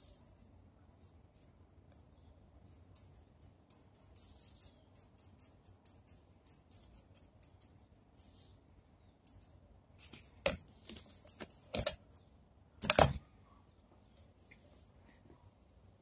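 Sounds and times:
paintbrush scratching on metal: 2.6 - 8.7.

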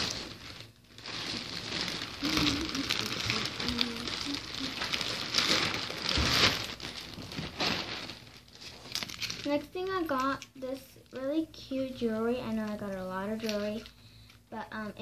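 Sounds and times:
sequined fabric rustling: 0.0 - 10.2.

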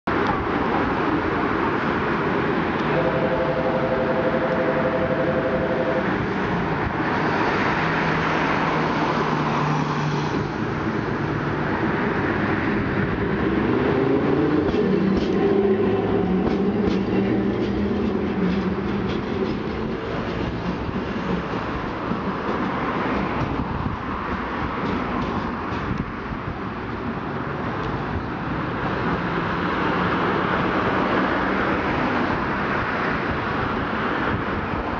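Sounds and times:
streetcar pulling away: 0.1 - 32.8
road traffic passing: 0.1 - 34.9
tram rumbling on rails: 0.1 - 34.9
steady two-note tone: 2.9 - 6.1.

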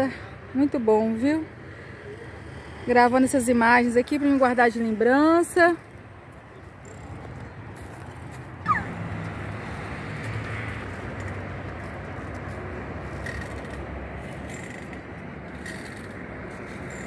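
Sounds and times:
distant road traffic rumble: 0.0 - 17.0.

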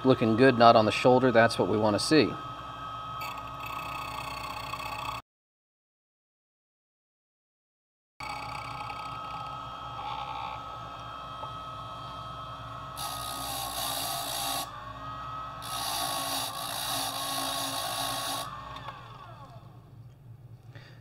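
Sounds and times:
key machine motor whining: 0.0 - 5.2, 8.2 - 20.2
key rasping on deburring wheel: 15.6 - 19.5.

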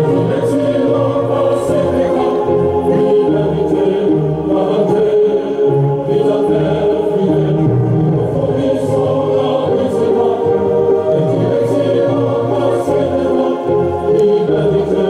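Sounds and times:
choir singing held notes: 0.0 - 15.0.

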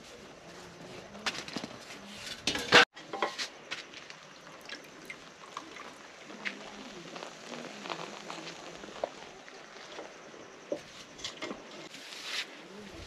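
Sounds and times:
pot boiling with bubbling pops: 2.5 - 11.9.

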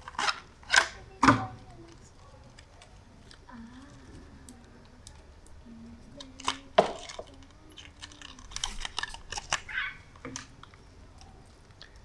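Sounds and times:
plastic packaging clicks and crackles: 6.2 - 12.0.

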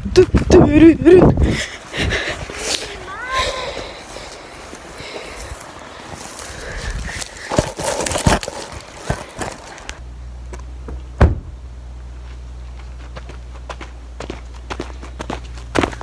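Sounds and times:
rustling in grass: 1.8 - 10.0
low steady rumble: 9.9 - 16.0
car door shutting: 10.9 - 11.6.

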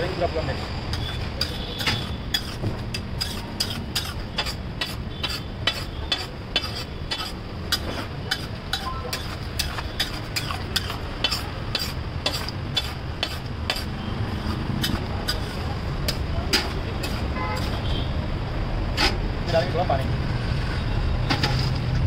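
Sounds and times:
spatula scraping on iron griddle: 0.9 - 17.8.

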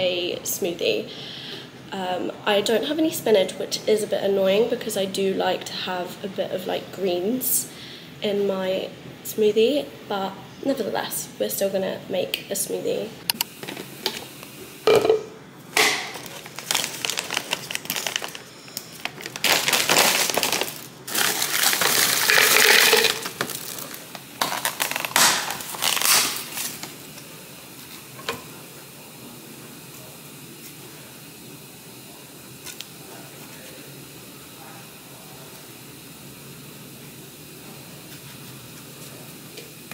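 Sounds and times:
plastic bag crinkling: 15.9 - 27.0
fruit chunks clattering into plastic cup: 19.1 - 26.4.

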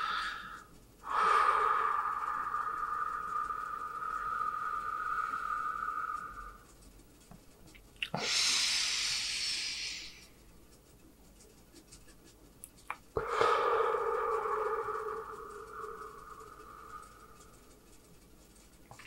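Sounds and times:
man breathing heavily: 0.0 - 6.6, 8.2 - 10.2, 13.2 - 17.5
steady hum: 0.0 - 19.0.

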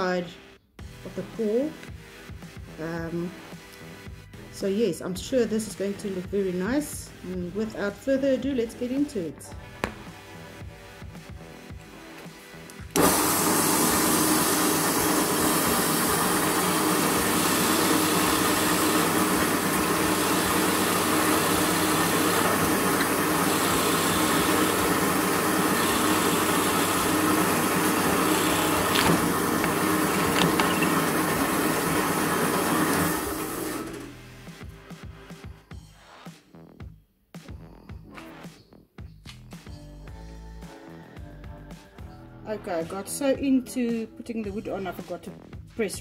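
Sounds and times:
drill press boring wood: 12.9 - 34.1.

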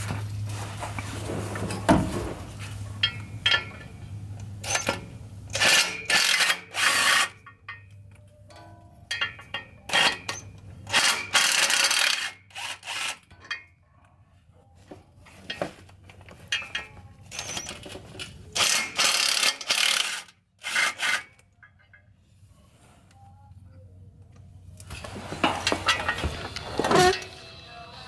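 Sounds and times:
cordless power tool spinning bolts: 4.6 - 7.4, 9.9 - 13.3, 18.6 - 21.4.

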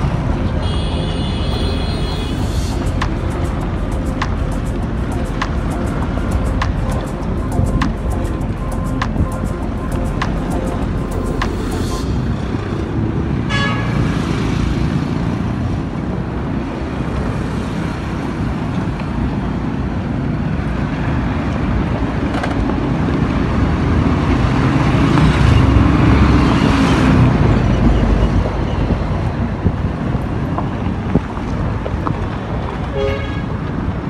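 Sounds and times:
truck engine: 0.0 - 15.2
horn toot: 0.6 - 3.8.

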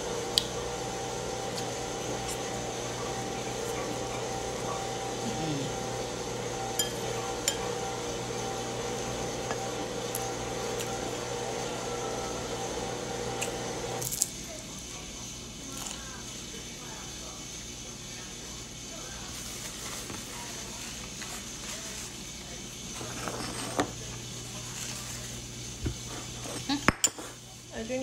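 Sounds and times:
steady machine hum: 0.0 - 19.3
fork clinking on ceramic bowl: 6.8 - 7.6.

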